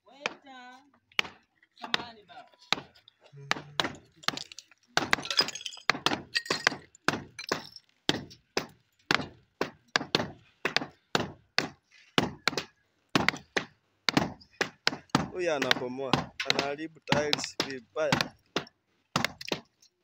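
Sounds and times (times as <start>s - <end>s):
tile shattering: 4.2s - 6.8s.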